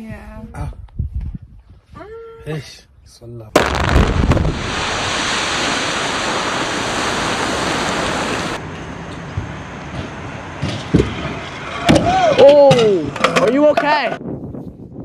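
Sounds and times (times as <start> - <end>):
quarry blast detonation cracks: 3.6 - 8.6
rush of falling rock: 3.6 - 8.6.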